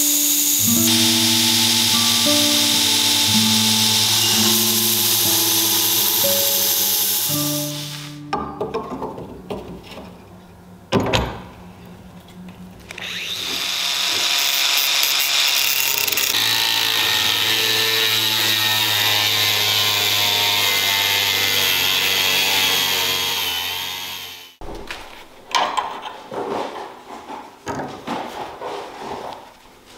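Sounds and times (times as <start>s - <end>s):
angle grinder cutting steel rod: 0.0s - 8.2s, 12.9s - 24.6s.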